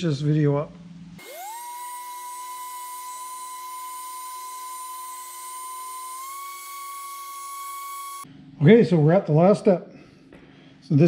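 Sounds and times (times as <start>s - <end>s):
orbital sander whining: 1.2s - 8.3s.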